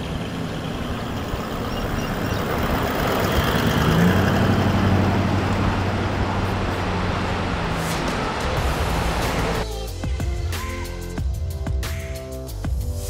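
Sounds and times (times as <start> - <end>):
vehicle engine driving past: 0.0 - 9.6.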